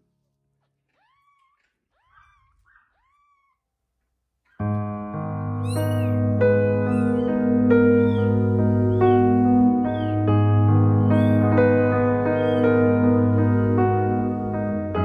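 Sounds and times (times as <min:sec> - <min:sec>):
kittens mewing: 0:00.7 - 0:03.7, 0:05.6 - 0:10.3, 0:11.0 - 0:13.1.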